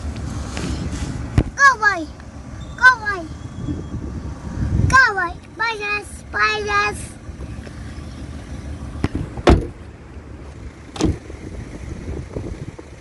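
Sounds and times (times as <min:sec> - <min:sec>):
low steady rumble: 0:00.0 - 0:13.0
car door slamming: 0:09.0 - 0:09.8, 0:10.9 - 0:11.3
light thump: 0:09.0 - 0:09.8, 0:10.9 - 0:11.2.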